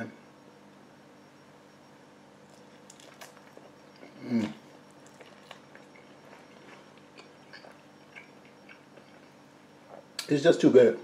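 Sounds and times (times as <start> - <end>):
man humming mmm while eating: 4.0 - 5.2.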